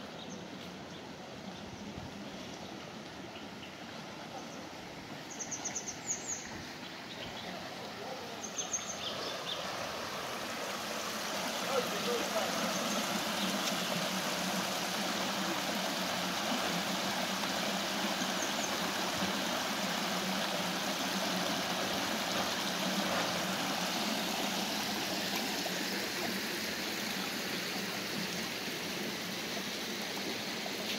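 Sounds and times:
water spilling over a weir: 9.4s - 30.9s.

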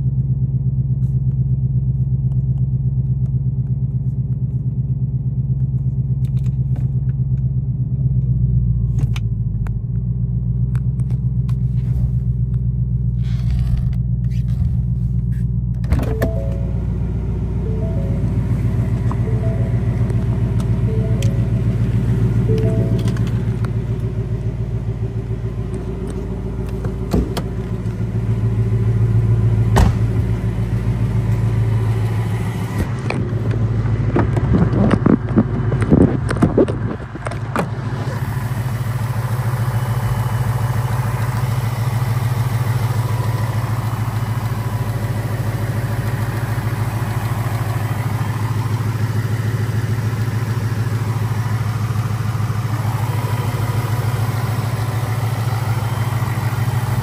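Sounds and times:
car engine idling: 0.0s - 57.0s.

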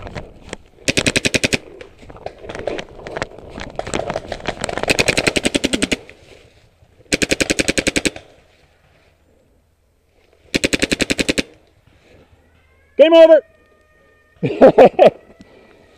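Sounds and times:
paintball marker firing bursts: 0.8s - 1.6s, 4.8s - 6.0s, 7.1s - 8.3s, 10.5s - 11.6s.

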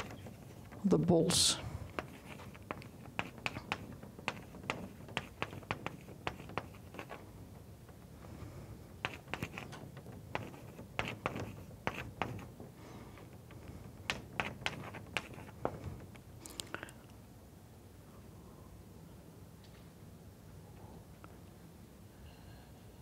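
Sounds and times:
chalk writing on blackboard: 0.0s - 0.8s, 1.9s - 7.3s, 9.0s - 15.8s.

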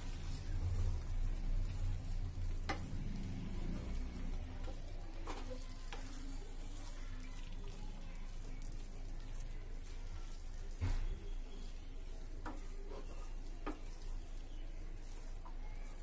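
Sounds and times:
food sizzling in a pan: 0.0s - 16.0s
spatula stirring rice: 0.0s - 16.0s.

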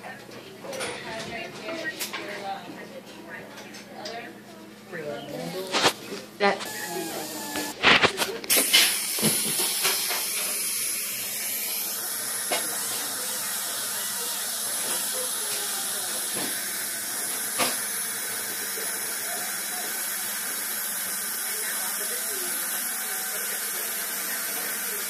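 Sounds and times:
dental suction hissing: 6.6s - 21.2s.

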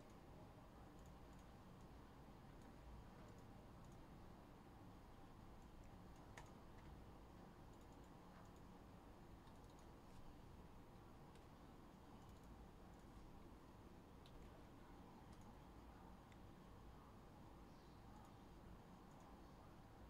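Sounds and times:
low room hum: 0.0s - 20.0s
faint clicks: 1.0s - 4.1s, 5.6s - 7.0s, 7.7s - 8.7s, 9.4s - 10.0s, 10.9s - 13.2s, 14.2s - 14.6s, 15.2s - 15.6s, 19.0s - 19.4s.

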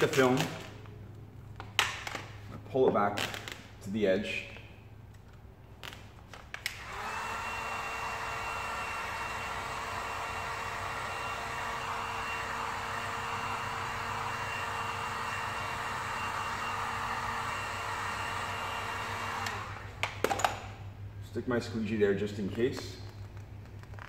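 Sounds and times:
heat gun blowing with whine: 6.6s - 20.0s.

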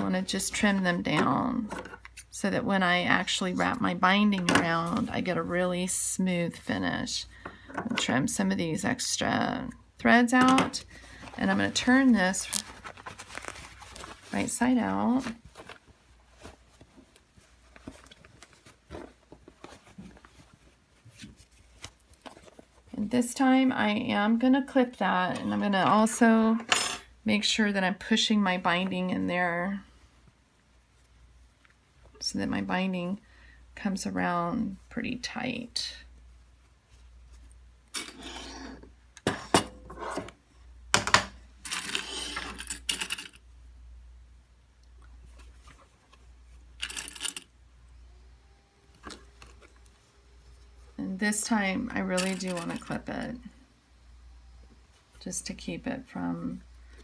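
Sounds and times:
fabric rustling: 10.9s - 23.0s.

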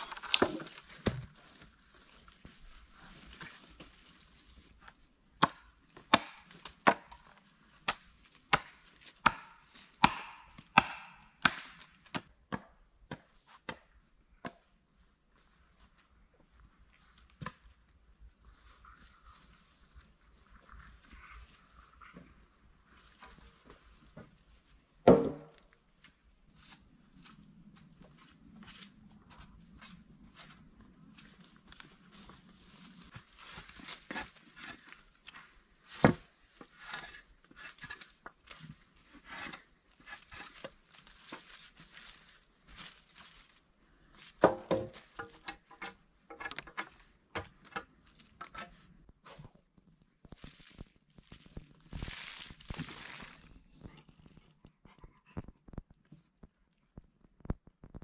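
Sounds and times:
wooden logs knocking together: 0.0s - 1.4s, 5.4s - 7.3s, 7.9s - 13.8s, 25.0s - 25.7s, 44.4s - 48.6s
leaves and twigs crackling underfoot: 0.0s - 10.0s, 15.3s - 24.9s, 25.6s - 45.3s, 46.8s - 54.6s.

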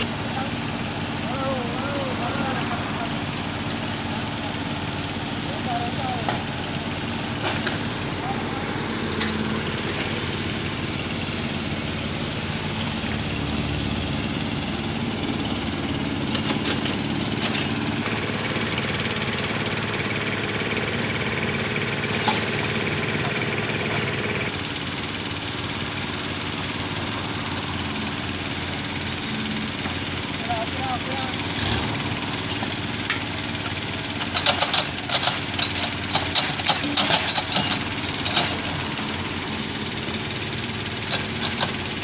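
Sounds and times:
engine humming: 0.0s - 42.0s.

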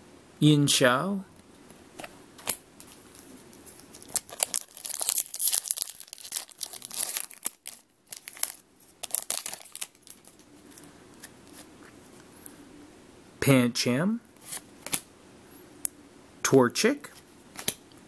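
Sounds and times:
foil wrapper crinkling and tearing: 2.4s - 10.5s.

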